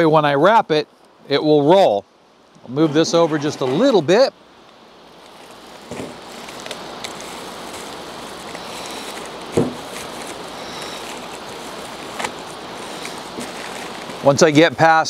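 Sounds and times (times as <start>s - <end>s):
paper rustling and crinkling: 5.1s - 14.8s.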